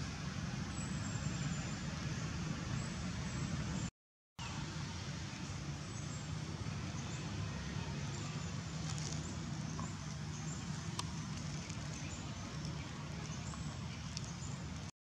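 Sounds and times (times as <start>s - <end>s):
outdoor rumble and hiss: 0.0s - 14.9s
faint clicks: 12.6s - 14.4s.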